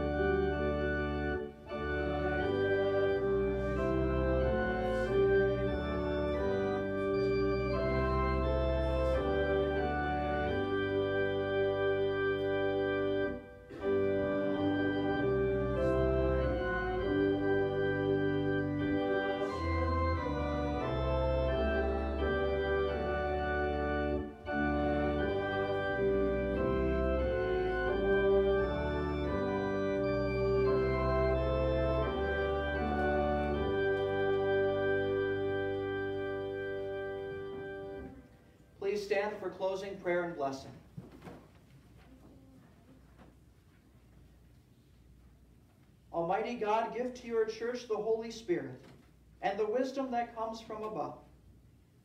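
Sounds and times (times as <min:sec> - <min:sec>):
organ playing slow chords: 0:00.0 - 0:40.7.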